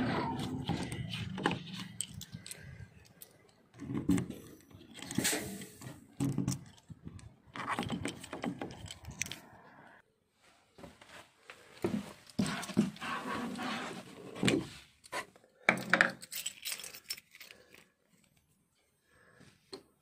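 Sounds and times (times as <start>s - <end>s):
keys jangling: 16.0s - 17.9s.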